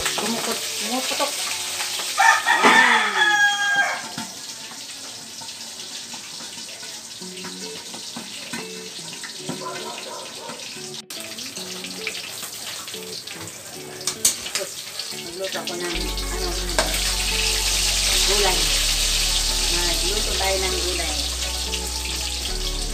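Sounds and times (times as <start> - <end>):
fish frying in oil: 0.0 - 22.9
rooster crowing: 2.2 - 4.3.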